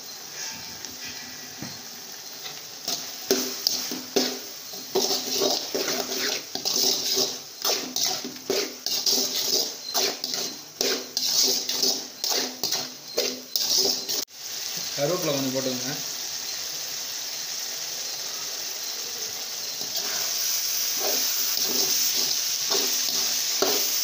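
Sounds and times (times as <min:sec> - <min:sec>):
frying hiss: 0:00.0 - 0:24.0
ladle scraping metal pan: 0:02.9 - 0:14.3.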